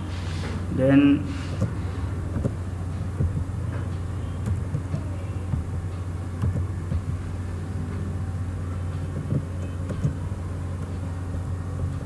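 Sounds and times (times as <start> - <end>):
low background hum: 0.0 - 12.0
computer keyboard typing: 4.4 - 5.8, 6.4 - 7.2.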